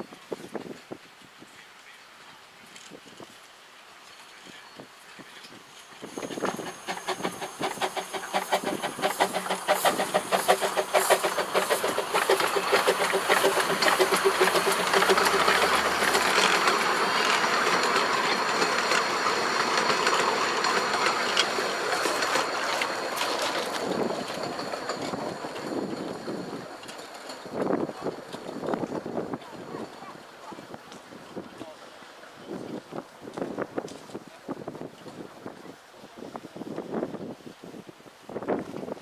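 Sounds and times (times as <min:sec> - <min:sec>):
carriage wheels clattering on rails: 0:05.2 - 0:31.8
steam locomotive exhaust beats: 0:05.2 - 0:35.3.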